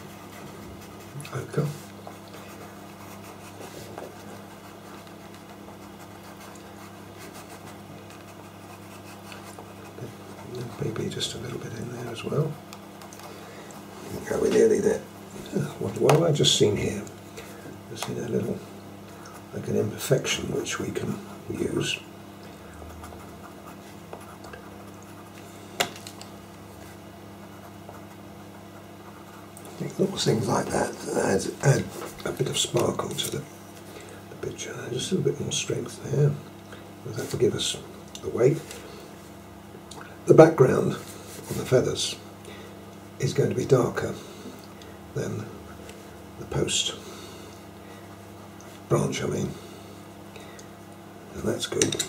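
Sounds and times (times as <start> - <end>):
steady low hum: 0.0 - 52.0
pencil scratching on paper: 2.2 - 11.2.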